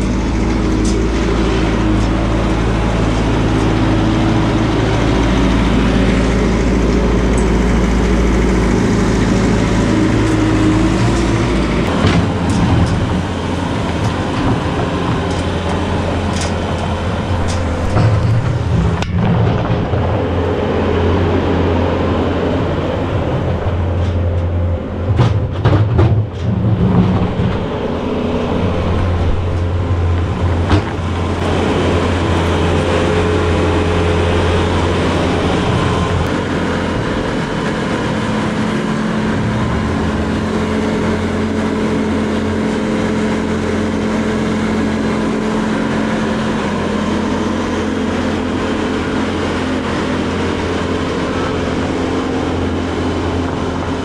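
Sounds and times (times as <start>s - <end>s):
skid steer engine running: 0.0s - 54.0s.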